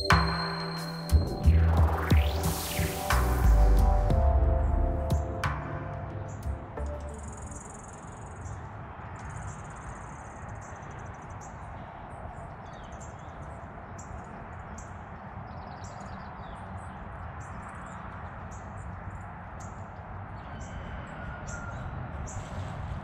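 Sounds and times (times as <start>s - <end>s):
background hiss: 0.0s - 8.0s
bird chirps: 0.0s - 11.7s
low rumble: 1.1s - 7.6s.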